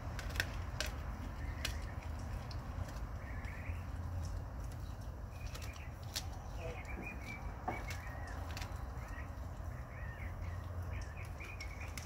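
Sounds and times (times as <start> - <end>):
dog crunching bone: 0.0 - 6.6, 7.2 - 9.4
bird chirp: 1.0 - 12.0.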